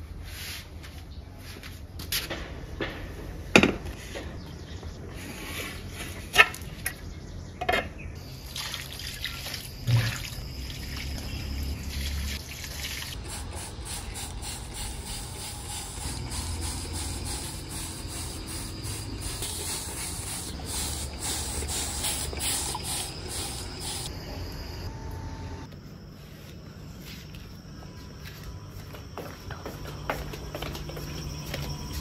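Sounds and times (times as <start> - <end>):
water pouring into soil: 8.5 - 11.2, 11.9 - 24.1
spray bottle hissing squirts: 13.0 - 24.1.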